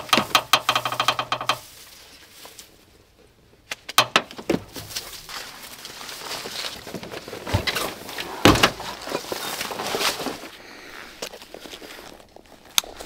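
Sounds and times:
knocks: 0:00.0 - 0:01.6, 0:04.0 - 0:04.9
loud heavy thump: 0:08.4 - 0:08.9.

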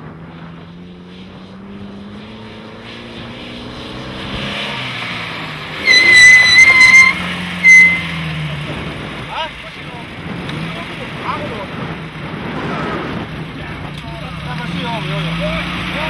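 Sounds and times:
shrill high tone: 0:05.7 - 0:08.0.

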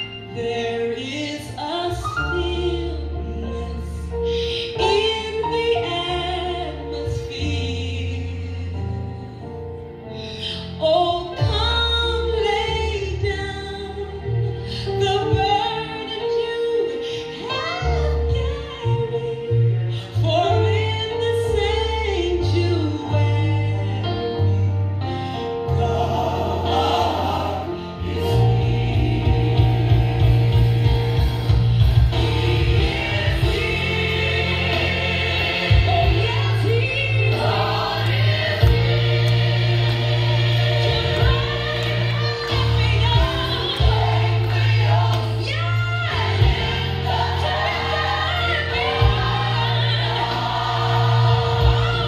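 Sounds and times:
choir singing gospel song: 0:00.0 - 0:09.8, 0:25.2 - 0:52.0
steady bass line: 0:25.8 - 0:52.0.

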